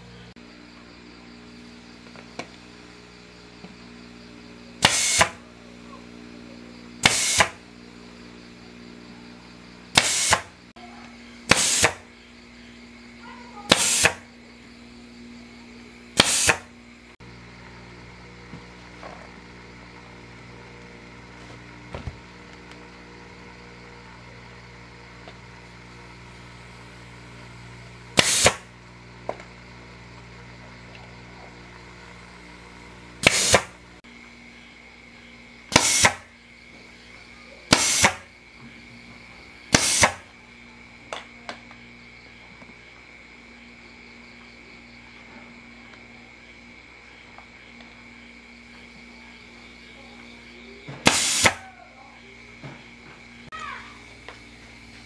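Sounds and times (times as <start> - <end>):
pneumatic staple gun firing: 4.8 - 5.4, 7.0 - 7.6, 9.9 - 10.6, 11.5 - 12.1, 13.7 - 14.2, 16.2 - 16.7, 28.1 - 28.7, 33.2 - 33.8, 35.7 - 36.3, 37.7 - 38.3, 39.7 - 40.3, 51.0 - 51.6.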